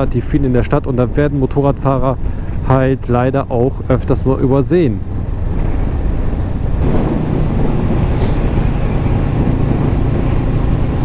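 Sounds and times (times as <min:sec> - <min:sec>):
wind rushing over microphone: 0:00.0 - 0:11.0
motorcycle engine accelerating: 0:04.4 - 0:11.0.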